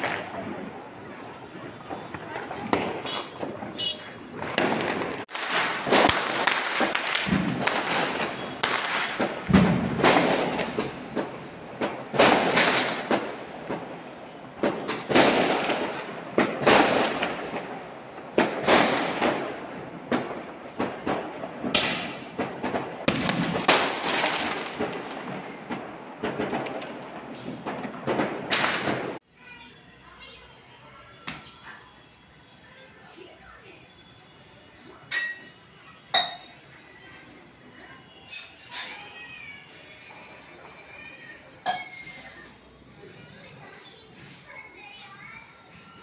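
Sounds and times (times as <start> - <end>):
distant firecracker crackling: 0.0 - 29.2
firecracker bangs with echo: 0.0 - 29.2, 35.1 - 36.8.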